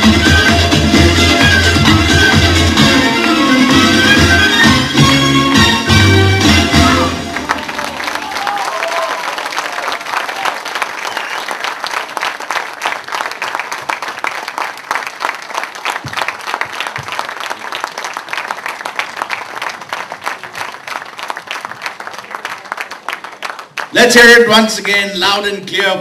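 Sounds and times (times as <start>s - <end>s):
audience applauding: 6.8s - 25.0s.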